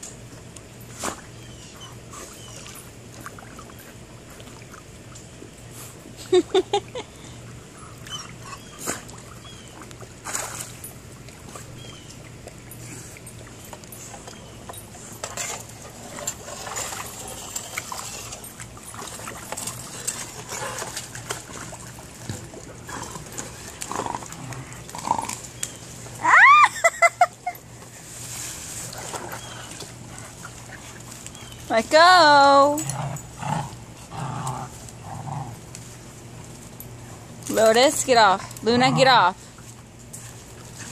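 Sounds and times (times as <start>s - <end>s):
dogs splashing in pool: 0.1s - 40.9s
water clicks: 7.9s - 26.3s
dog whines: 8.0s - 9.0s.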